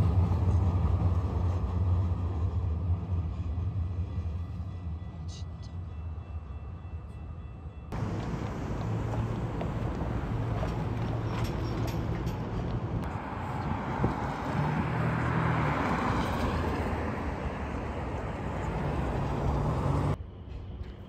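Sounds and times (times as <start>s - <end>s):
cars and truck driving past: 7.9s - 20.2s.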